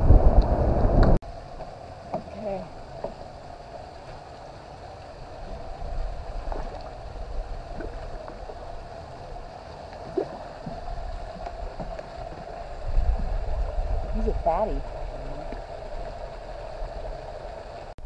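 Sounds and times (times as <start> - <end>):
low rumble: 0.0 - 1.6, 5.2 - 18.0
water trickling and gurgling: 0.0 - 18.0.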